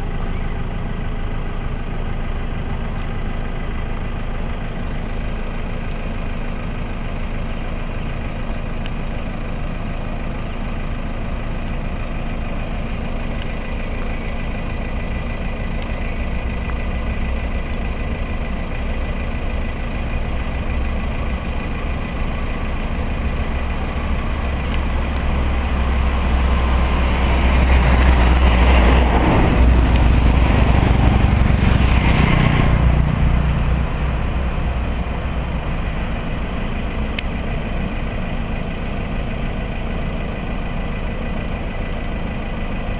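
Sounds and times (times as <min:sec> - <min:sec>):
car engine idling: 0:00.0 - 0:42.9
rushing noise: 0:23.1 - 0:38.2.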